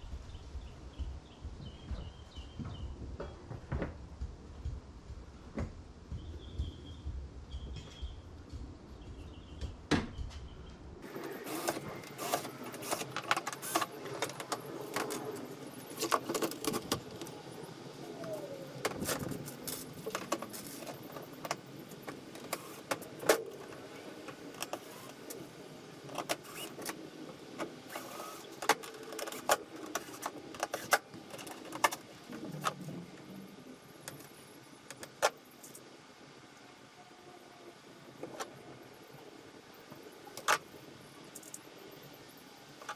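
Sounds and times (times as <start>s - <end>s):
small parts clicking and rattling: 41.3s - 41.7s.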